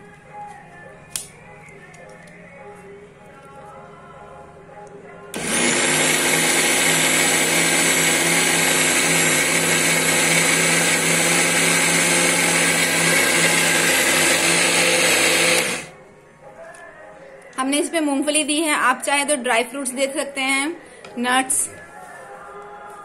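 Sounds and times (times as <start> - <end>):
mixer grinder motor whining: 5.4 - 15.9.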